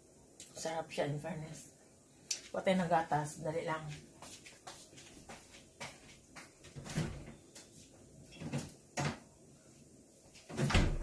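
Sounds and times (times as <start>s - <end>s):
kitchen knocks and thuds: 8.4s - 9.3s.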